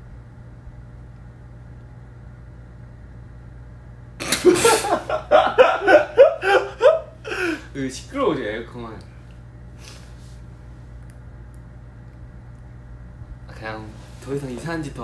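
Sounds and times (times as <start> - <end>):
air conditioner humming: 0.0 - 15.0
man laughing loudly: 4.2 - 7.7.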